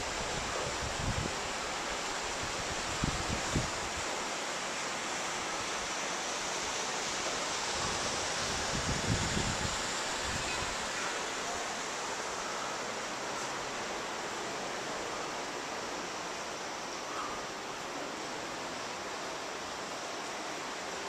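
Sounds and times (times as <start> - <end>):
wind hiss: 0.0 - 21.0
wind buffeting microphone: 7.8 - 10.7.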